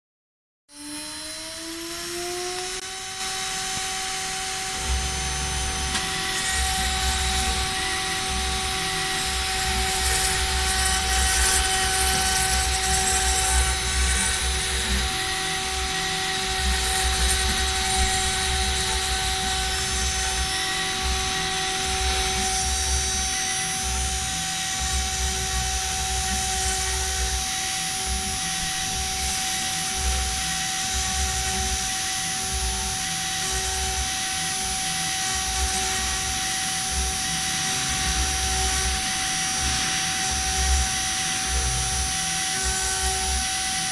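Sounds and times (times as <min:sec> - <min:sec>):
router spindle whine: 0:00.7 - 0:43.9
bit grinding into wood: 0:02.1 - 0:27.6.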